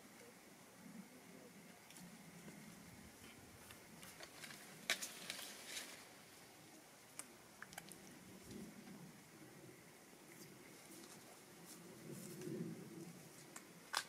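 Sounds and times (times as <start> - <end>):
faint clicks and rustles: 1.7 - 9.0, 10.2 - 14.0.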